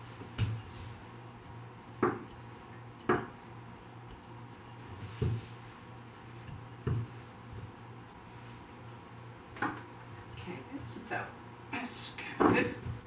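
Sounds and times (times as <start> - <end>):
rolling pin rolling dough: 0.0 - 11.7
rolling pin knocking on counter: 2.0 - 2.3, 3.0 - 3.4, 6.5 - 7.2.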